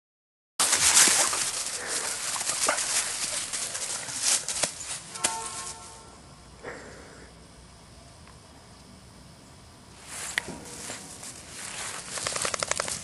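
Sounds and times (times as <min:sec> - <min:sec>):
dry leaves crunching underfoot: 0:00.6 - 0:06.1, 0:10.0 - 0:13.0.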